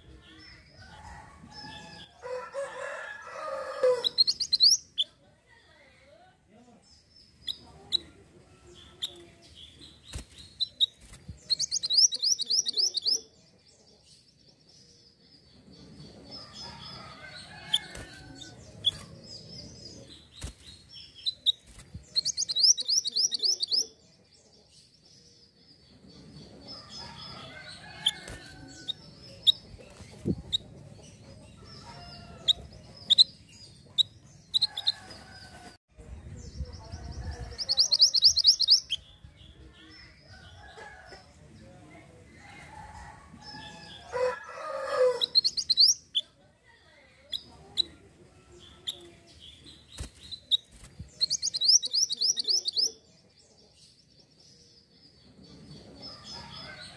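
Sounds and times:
high bird chirps: 0:04.0 - 0:05.2, 0:09.9 - 0:13.2, 0:20.7 - 0:23.9, 0:37.5 - 0:39.1, 0:45.2 - 0:46.3, 0:50.0 - 0:52.9.

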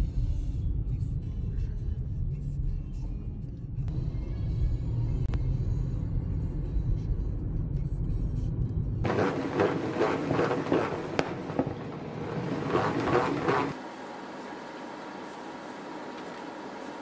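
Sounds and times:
car cabin rumble: 0:09.0 - 0:13.8
salad spinner rustling: 0:09.1 - 0:13.8.

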